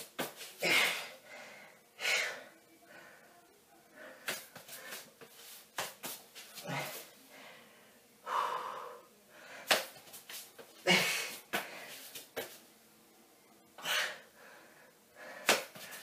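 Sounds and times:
person breathing forcefully: 0:06.6 - 0:09.8.

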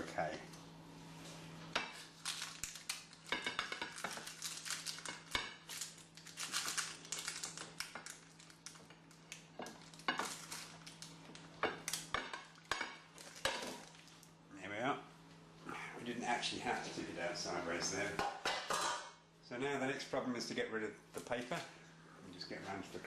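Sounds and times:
steady low hum: 0:00.0 - 0:23.0
baking paper rustling: 0:01.1 - 0:12.1.

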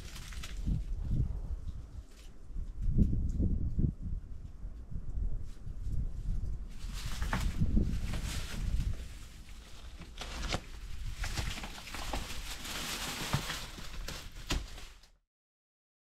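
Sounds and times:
cloth curtains rustling: 0:06.7 - 0:15.1.

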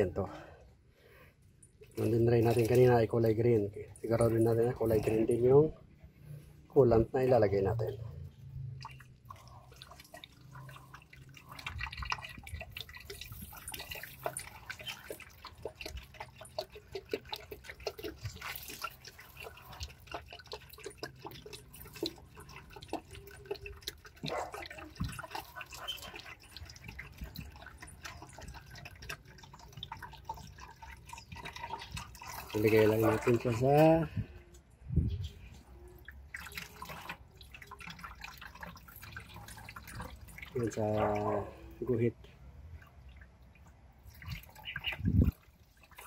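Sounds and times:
liquid pouring into a funnel: 0:01.6 - 0:34.5, 0:35.7 - 0:46.0.

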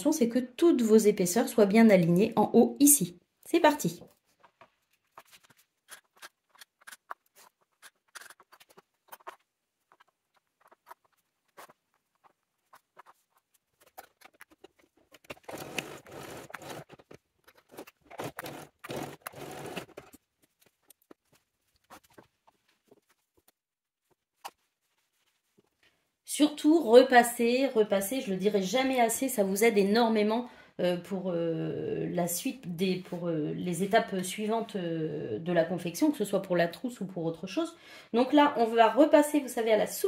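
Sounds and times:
fabric rustling: 0:07.2 - 0:26.2.

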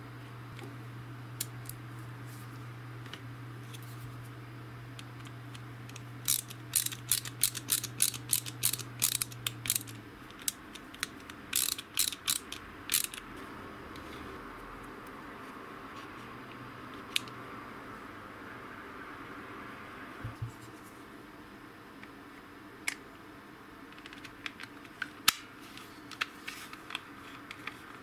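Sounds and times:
ratcheting screwdriver clicking: 0:05.9 - 0:13.2.

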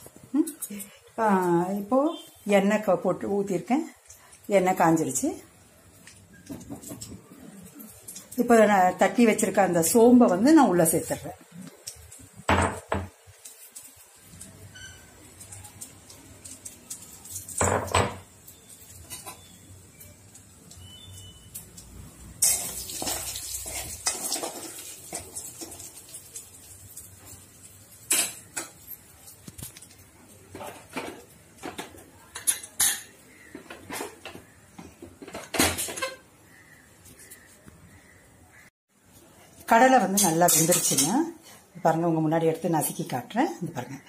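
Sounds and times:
seeds sizzling in hot oil: 0:13.1 - 0:34.6
steel spoon scraping a pan: 0:20.9 - 0:26.4, 0:40.0 - 0:41.3.

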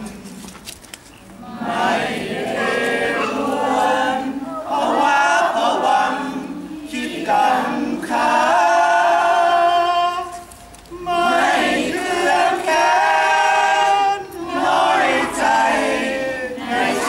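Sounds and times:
crowd singing in unison: 0:01.3 - 0:17.0.

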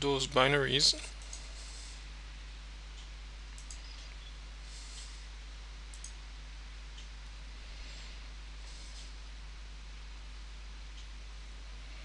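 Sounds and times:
low electrical hum: 0:00.0 - 0:12.0
microphone hiss: 0:00.0 - 0:12.0
computer mouse clicks: 0:03.6 - 0:04.1, 0:05.9 - 0:06.2.

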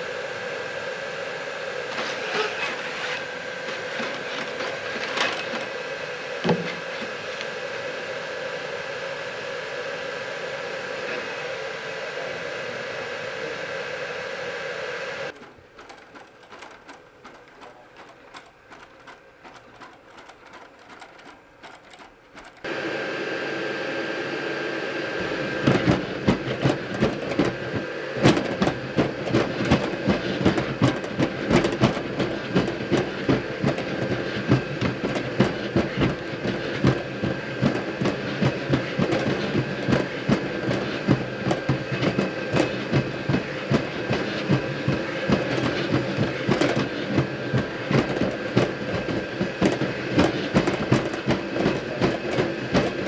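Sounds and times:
rapid irregular clacking: 0:15.3 - 0:22.7
robot motors whirring: 0:15.3 - 0:22.7.

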